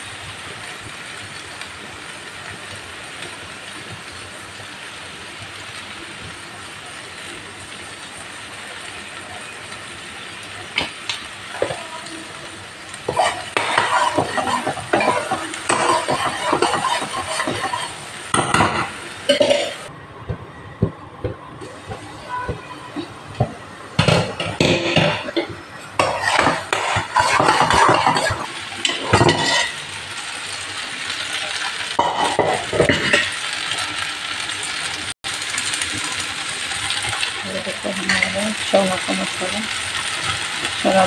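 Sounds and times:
gravy sizzling in a pan: 0:00.0 - 0:19.9, 0:21.6 - 0:41.0
spoon scraping a pan: 0:13.1 - 0:19.9, 0:24.0 - 0:29.8.

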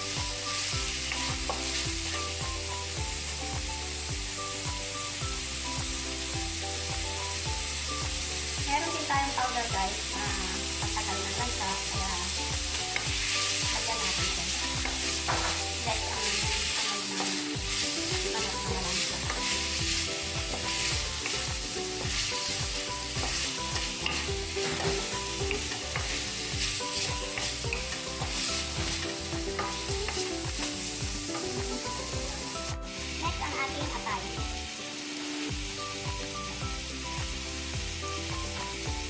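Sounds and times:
chicken wings sizzling in a wok: 0:00.0 - 0:39.0
wooden spatula scraping a pan: 0:12.9 - 0:31.6.

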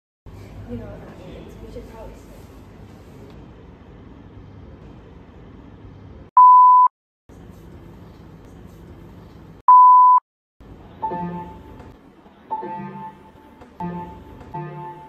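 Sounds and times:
grand piano notes: 0:12.5 - 0:15.0.

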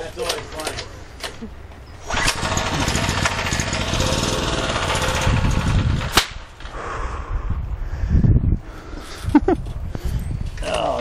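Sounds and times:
generator engine rattling: 0:01.5 - 0:06.2
engine backfire crack: 0:02.0 - 0:06.8.

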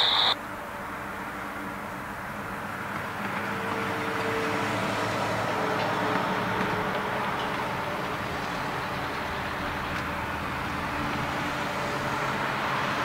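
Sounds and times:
jet engines humming: 0:00.0 - 0:00.4
faint engine whine: 0:00.0 - 0:03.5.

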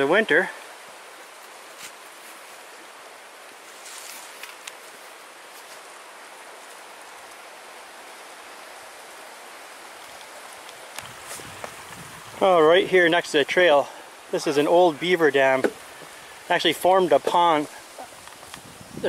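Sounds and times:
stream water rushing: 0:00.0 - 0:19.0
faint crackles: 0:03.4 - 0:06.0, 0:09.8 - 0:12.4, 0:17.5 - 0:19.0.

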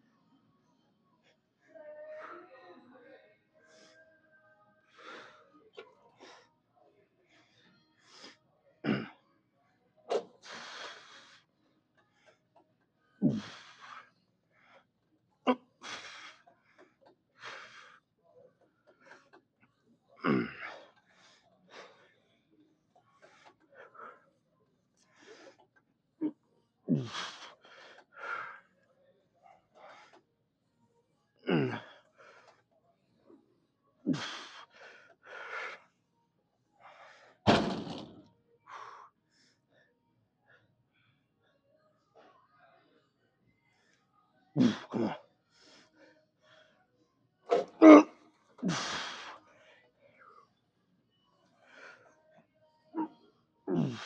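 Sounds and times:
man exhaling and grunting: 0:13.2 - 0:13.8, 0:26.9 - 0:27.5, 0:44.6 - 0:45.2, 0:47.6 - 0:49.3, 0:53.7 - 0:54.0
weight stack thud: 0:37.5 - 0:38.2.

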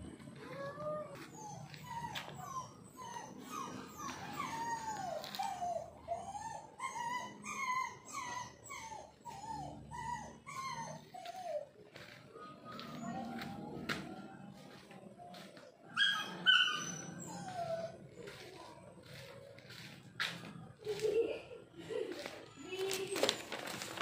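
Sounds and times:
dog whining and whimpering: 0:00.2 - 0:13.8, 0:15.8 - 0:19.5.

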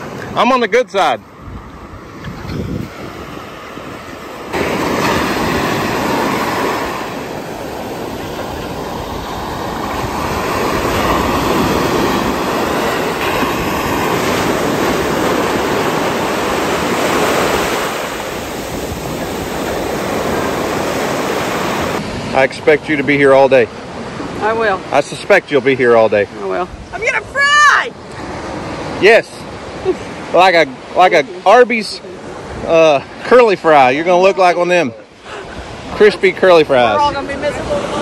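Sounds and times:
surf breaking on sandy beach: 0:00.0 - 0:38.0.

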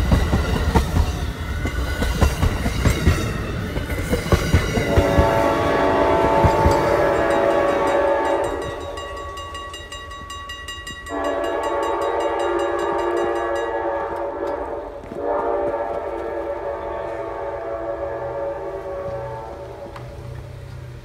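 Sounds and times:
crossing bell ringing: 0:00.0 - 0:14.9
train air horn chord: 0:04.9 - 0:09.1, 0:11.1 - 0:20.2.

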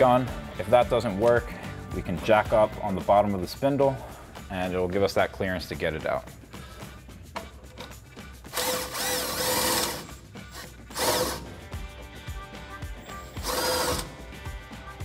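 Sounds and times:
impact wrench bursts: 0:08.5 - 0:11.6, 0:13.3 - 0:14.2.

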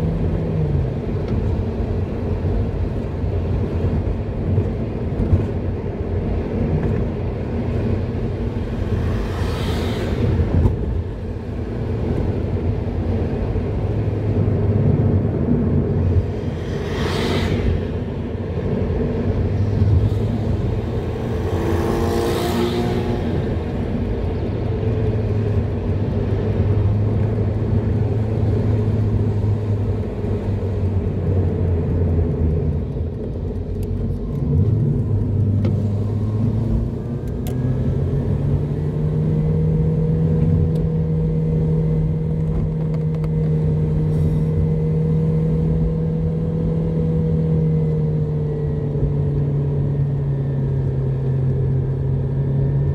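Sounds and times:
road noise: 0:00.0 - 0:52.9
brief whoosh: 0:16.2 - 0:18.4.

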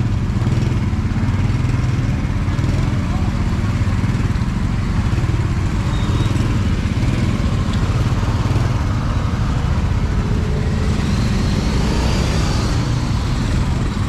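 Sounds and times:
motorbike and car engines: 0:00.0 - 0:14.0.

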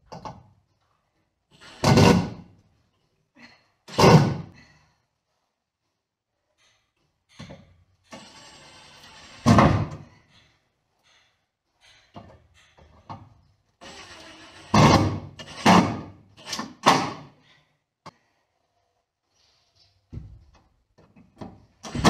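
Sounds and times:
cordless drill driving screws: 0:08.1 - 0:09.7, 0:13.8 - 0:16.9.

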